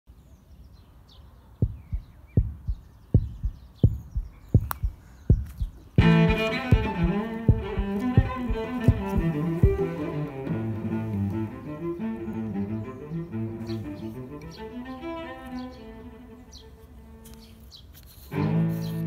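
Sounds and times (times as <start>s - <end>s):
low double thump: 1.6s - 10.0s
bowed strings: 6.0s - 16.4s, 18.3s - 19.0s.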